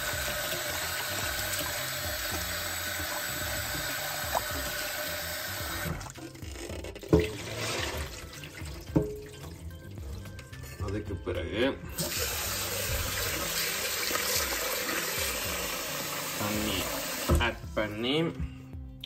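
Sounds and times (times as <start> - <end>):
water poured into steel sink: 0.0 - 6.3, 7.0 - 9.6, 12.0 - 17.3
tap water running into pot: 0.0 - 10.8, 12.0 - 17.4
pot knocking: 7.0 - 7.9, 8.8 - 9.4.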